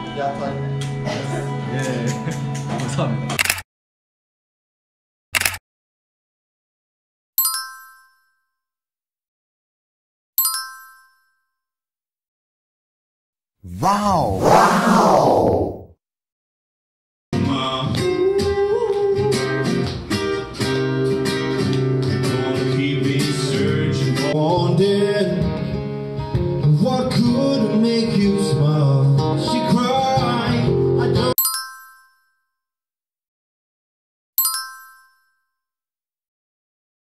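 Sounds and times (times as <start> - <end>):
man singing: 17.4 - 19.6, 22.2 - 25.6, 26.6 - 31.3.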